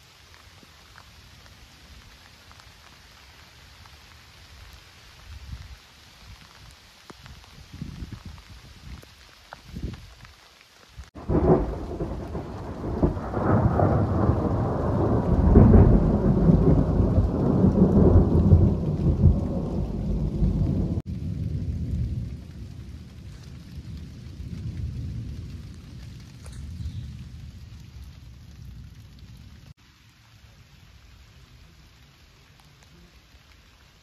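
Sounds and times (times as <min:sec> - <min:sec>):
rain: 0:00.0 - 0:34.0
low rumble of thunder: 0:11.2 - 0:29.7.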